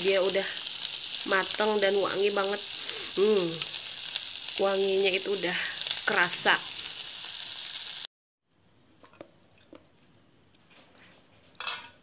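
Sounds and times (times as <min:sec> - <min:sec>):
fish sizzling on grill pan: 0:00.0 - 0:08.1.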